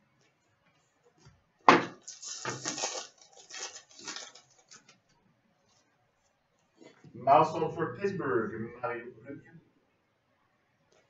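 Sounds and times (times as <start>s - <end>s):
cards rustling and flicking: 1.8s - 5.0s.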